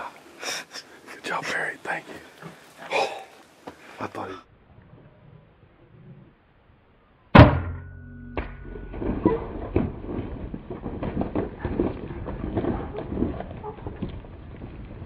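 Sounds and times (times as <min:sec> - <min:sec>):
sharp knock: 0:07.4 - 0:09.0
hoofbeats on stony ground: 0:09.0 - 0:15.0.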